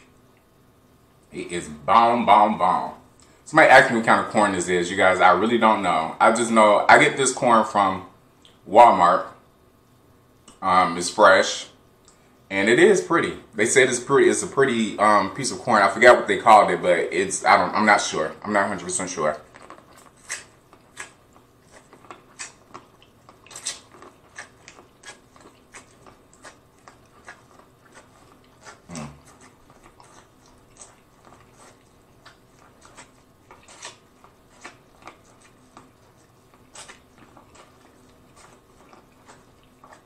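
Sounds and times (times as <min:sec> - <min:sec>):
chewing: 0:18.7 - 0:40.0
biting corn on the cob: 0:19.3 - 0:40.0.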